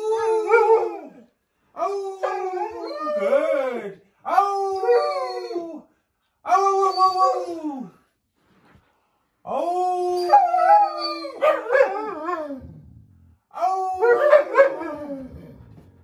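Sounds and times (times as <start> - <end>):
dogs howling: 0.0 - 1.2, 1.8 - 5.8, 10.0 - 12.7, 13.6 - 15.6
man howling: 1.8 - 5.8, 9.5 - 12.6.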